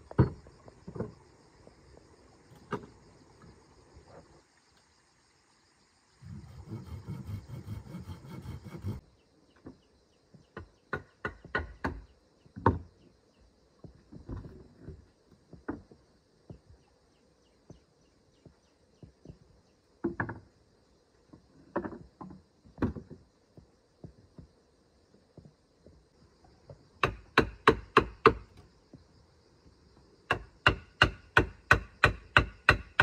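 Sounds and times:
wooden knocks and clatters: 0.0 - 1.2, 12.6 - 13.0, 13.8 - 16.6, 18.4 - 20.5, 21.3 - 24.5
faint insect buzz: 0.0 - 33.0.

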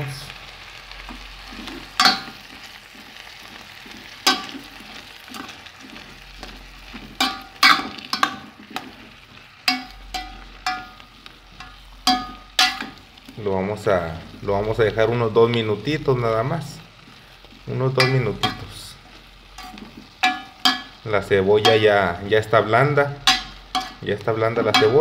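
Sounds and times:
low sizzle: 0.0 - 25.0
spoon stirring in a pot: 1.0 - 13.4, 17.0 - 25.0
spoon knocking against pot: 11.6 - 13.0, 19.6 - 21.0, 23.2 - 24.0.

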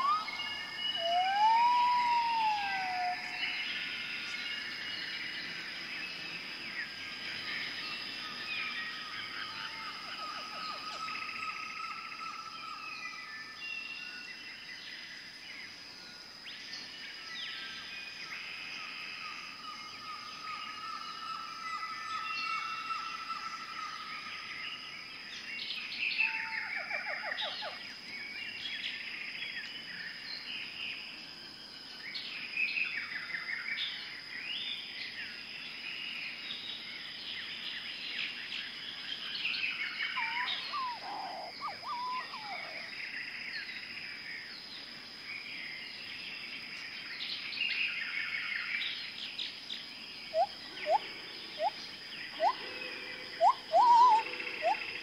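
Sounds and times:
sharp upward-sweeping bird calls: 0.0 - 3.4, 40.2 - 42.7, 53.4 - 54.9
songbirds chirping and trilling: 0.0 - 55.0.

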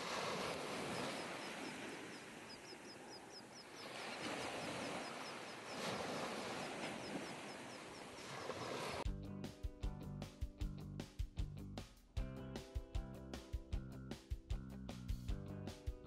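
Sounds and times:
surf washing on sandy beach: 0.0 - 9.1.

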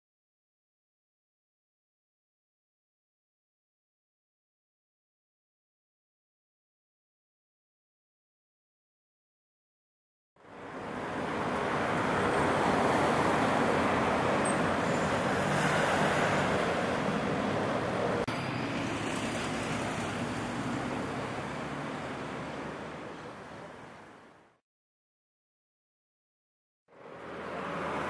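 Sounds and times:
cars driving past: 10.4 - 24.3, 26.9 - 28.0.

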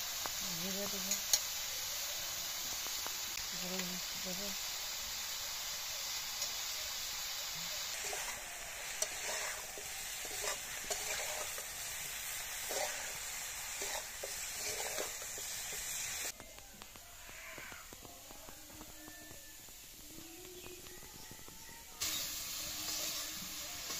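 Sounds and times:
broccoli sizzling in hot oil: 0.0 - 23.9
outdoor ambience: 0.0 - 23.9
metal spatula scraping a pan: 7.9 - 16.0.

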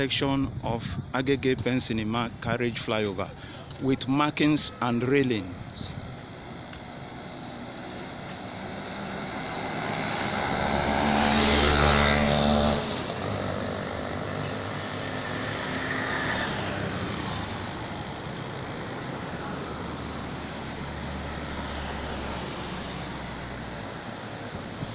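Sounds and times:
background traffic noise: 0.0 - 24.9
vehicle passing close by: 7.0 - 24.9.

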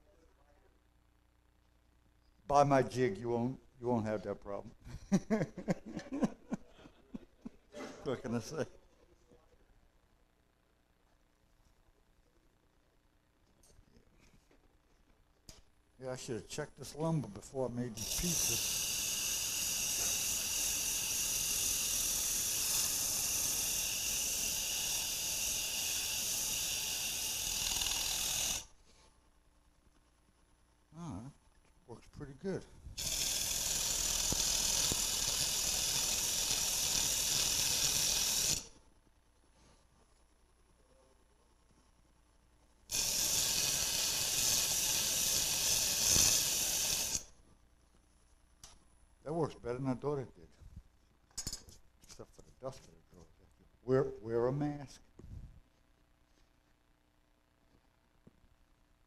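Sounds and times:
sanding disc hissing on wood: 17.9 - 28.8, 33.0 - 38.8, 42.9 - 47.4.

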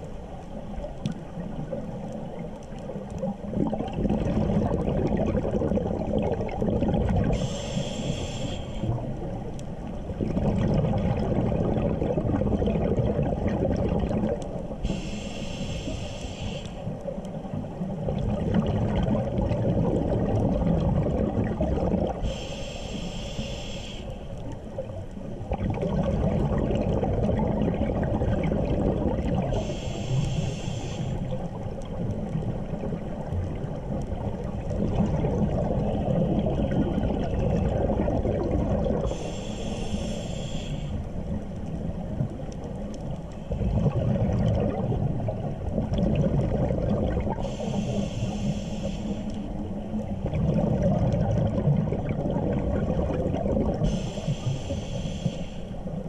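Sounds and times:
exhaled bubbles rumbling: 0.0 - 15.3, 16.8 - 22.4, 24.4 - 55.2
regulator inhale hiss: 7.3 - 9.0, 14.8 - 17.0, 22.2 - 24.4, 29.5 - 31.5, 39.0 - 41.3, 47.3 - 49.6, 53.8 - 56.0.

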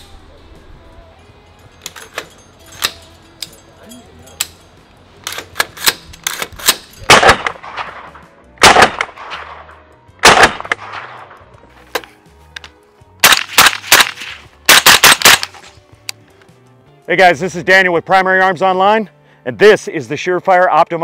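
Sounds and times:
metallic clicks of rifle action: 1.8 - 3.6, 5.2 - 8.1, 10.3 - 16.5
suppressed rifle shots: 5.3 - 11.4, 13.2 - 15.7.

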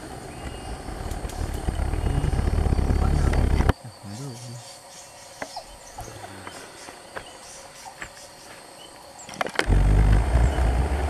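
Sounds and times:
low microphone rumble: 0.0 - 3.7, 9.7 - 11.0
high insect buzz: 0.0 - 11.0.

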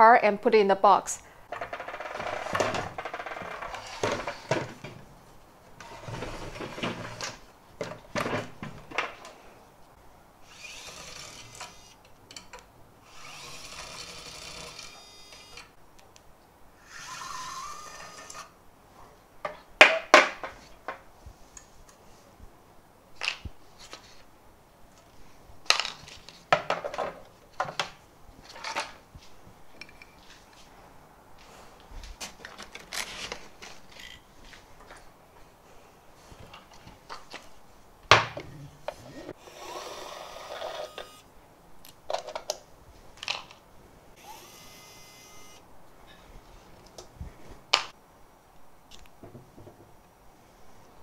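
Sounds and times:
electric screwdriver motor: 10.5 - 12.0, 13.1 - 15.7, 39.4 - 41.2, 44.2 - 45.6.

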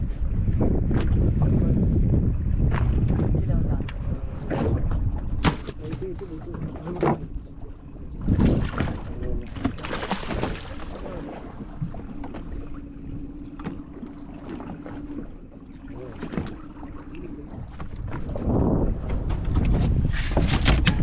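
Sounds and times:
low hum: 0.0 - 21.0
water splashing against boat: 0.0 - 21.0
wind on microphone: 0.0 - 21.0.

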